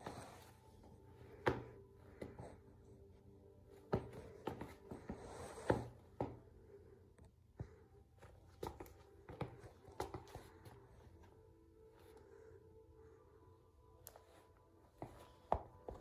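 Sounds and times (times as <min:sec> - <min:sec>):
sneaker taps and scuffs on floor: 0:03.9 - 0:06.4, 0:08.4 - 0:10.8.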